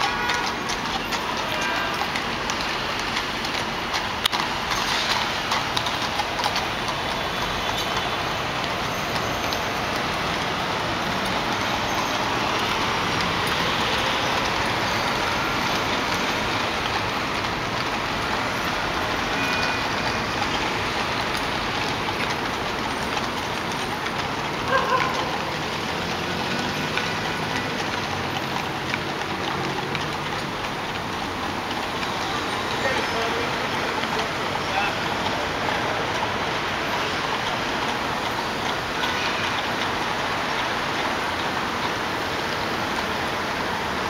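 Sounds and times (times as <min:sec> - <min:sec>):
city street traffic: 0:00.0 - 0:44.0.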